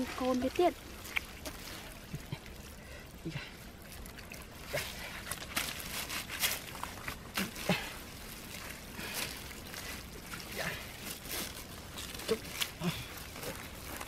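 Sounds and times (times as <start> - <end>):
wet mud squelching: 0.0 - 14.0
mesh net rustling: 4.4 - 14.0.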